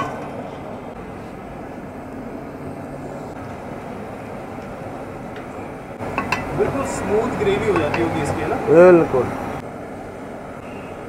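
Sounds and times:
gas burner roaring: 0.0 - 11.0
ladle clinking on pot: 6.0 - 7.0, 7.7 - 8.2.

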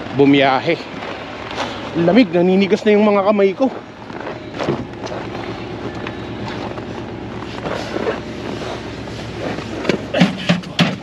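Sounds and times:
truck engine idling: 0.0 - 11.0
car door opening: 4.2 - 11.0.

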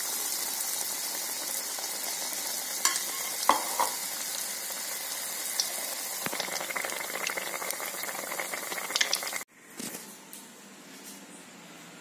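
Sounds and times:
oil sizzling and bubbling: 0.0 - 9.5.

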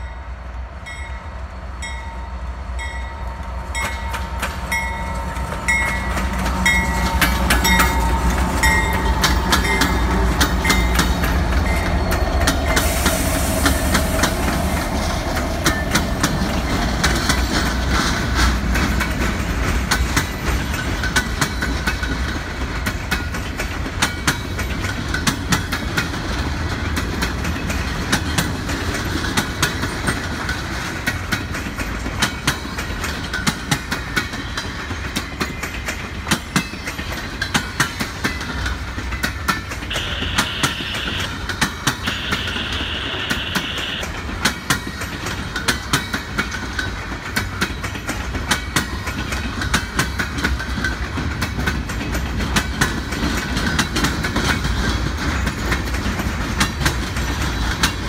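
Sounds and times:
diesel locomotive rumble: 0.0 - 58.0
train wheels clacking over rail joints: 2.8 - 58.0
high squeal: 39.9 - 41.4, 42.0 - 44.1.

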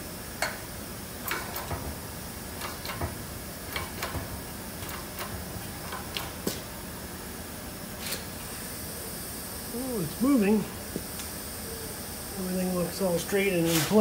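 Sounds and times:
steady hydraulic hiss: 9.9 - 14.0.

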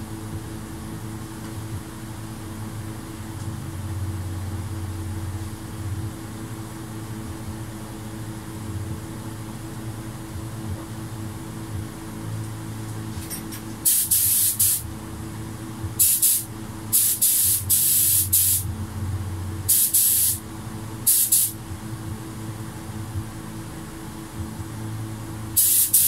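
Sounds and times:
light even hiss: 25.6 - 26.0.

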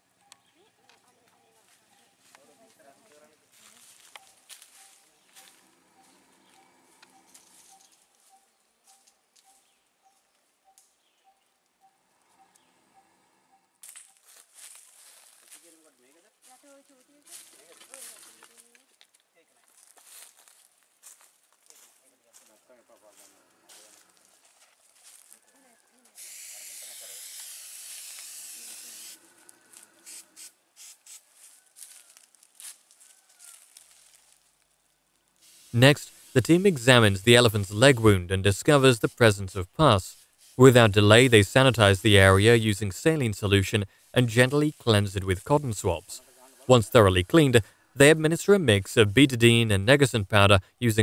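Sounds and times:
faint chirps: 3.9 - 14.3
steady hiss: 26.2 - 29.3, 35.3 - 48.8
short hisses and rustles: 26.2 - 31.4, 35.4 - 36.4
sharp crackle: 26.2 - 36.3.

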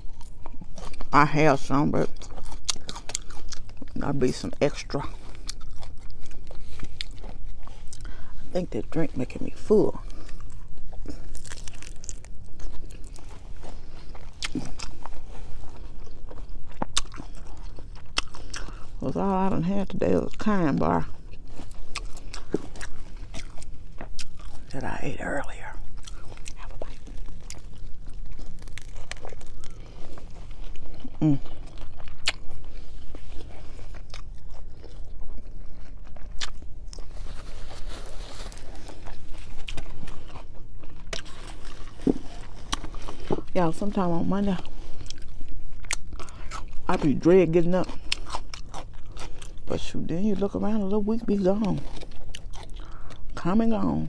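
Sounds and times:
lettuce crunching: 0.0 - 54.0
paper napkin rustling: 37.0 - 40.3.

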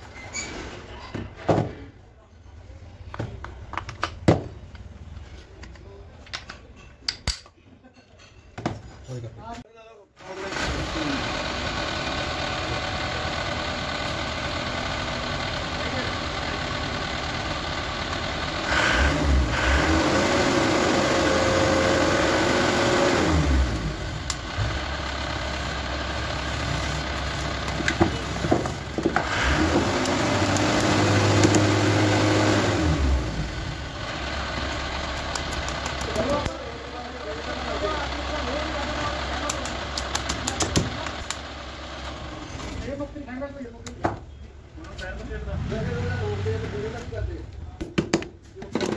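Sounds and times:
engine running and revving: 10.5 - 36.6, 45.4 - 47.1
sharp metallic clicks: 35.1 - 36.6, 39.4 - 41.4.

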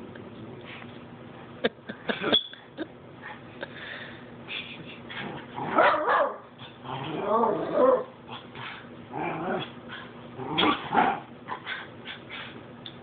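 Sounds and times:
dogs play-growling: 5.1 - 5.8, 6.6 - 12.6.

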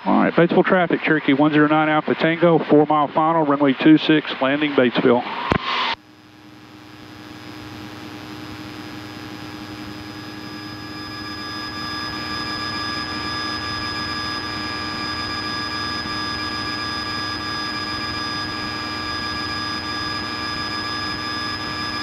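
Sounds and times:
airplane engine and propeller droning: 8.6 - 22.0.

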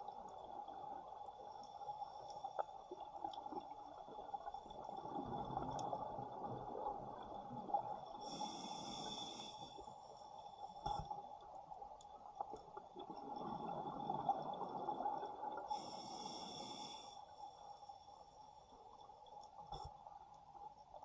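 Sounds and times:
steady underwater hiss: 0.0 - 21.0
regulator hissing inhale: 8.2 - 10.1, 15.7 - 17.5.

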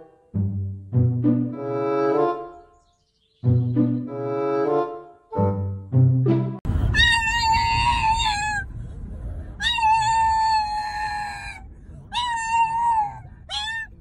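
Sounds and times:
dog whining: 7.0 - 8.7, 9.6 - 14.0.

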